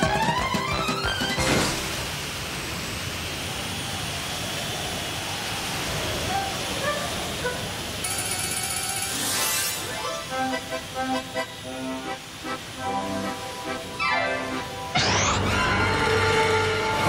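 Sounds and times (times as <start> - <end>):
steady rushing noise: 1.0 - 17.0.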